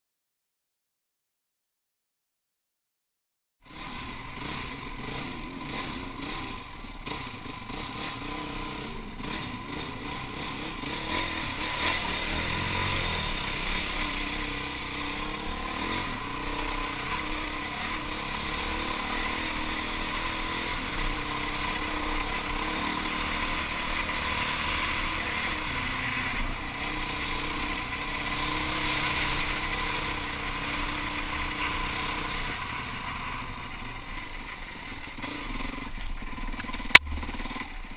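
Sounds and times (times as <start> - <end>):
motorcycle engine revving: 3.6 - 37.9
steady rushing noise: 9.6 - 37.9.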